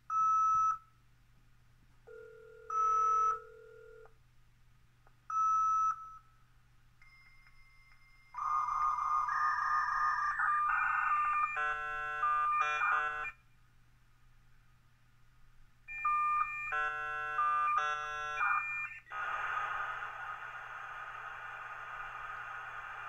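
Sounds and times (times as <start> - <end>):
modem hiss: 18.4 - 23.0.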